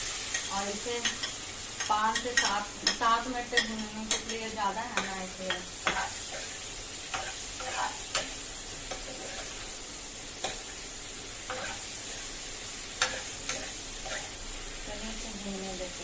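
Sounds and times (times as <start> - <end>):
onion and garlic sizzling in oil: 0.0 - 16.0
metal spoon scraping pan: 0.3 - 9.6, 11.5 - 12.2, 13.0 - 14.4.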